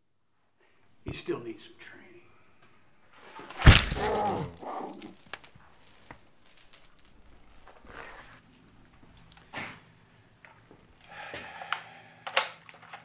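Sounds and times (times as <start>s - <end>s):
chain clinking and rattling: 3.6s - 8.4s
creature wavering cry: 3.9s - 5.1s.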